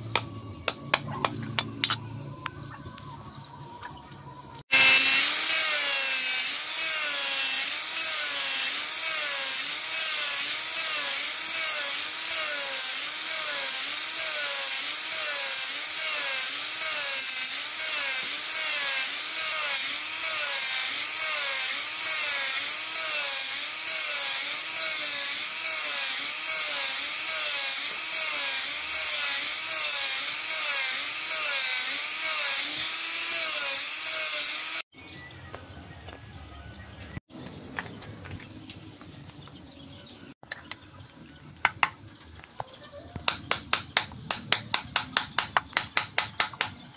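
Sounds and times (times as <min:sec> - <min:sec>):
angle grinder motor: 0:04.7 - 0:34.8
sanding disc rasping on wood: 0:04.7 - 0:34.8.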